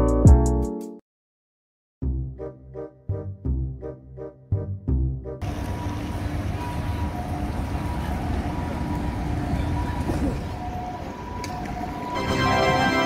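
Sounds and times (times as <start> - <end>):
traffic rumble: 5.4 - 12.7
faint steady tones: 5.4 - 13.0
music sting: 12.2 - 13.0.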